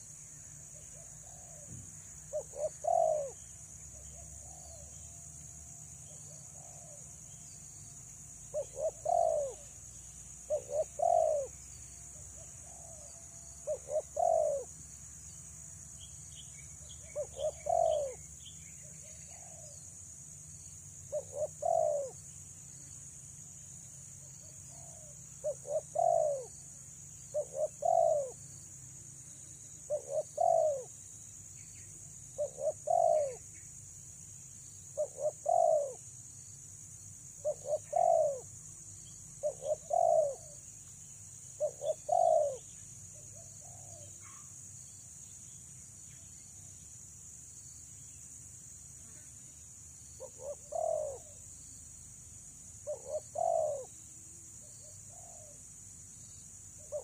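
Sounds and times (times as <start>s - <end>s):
dove cooing: 0.8s - 3.4s, 6.4s - 7.0s, 8.5s - 9.7s, 10.5s - 11.5s, 12.6s - 14.7s, 17.0s - 18.2s, 19.0s - 19.8s, 21.1s - 22.2s, 24.4s - 26.5s, 27.3s - 28.4s, 29.9s - 30.9s, 32.4s - 33.4s, 35.0s - 36.0s, 37.4s - 38.5s, 39.4s - 40.6s, 41.6s - 44.4s, 50.2s - 51.4s, 52.8s - 53.9s, 54.6s - 55.6s, 56.8s - 57.0s.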